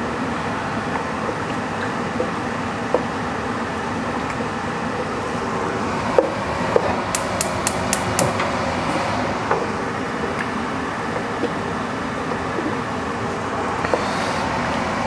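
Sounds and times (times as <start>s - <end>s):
sharp high clicks: 7.1s - 8.4s.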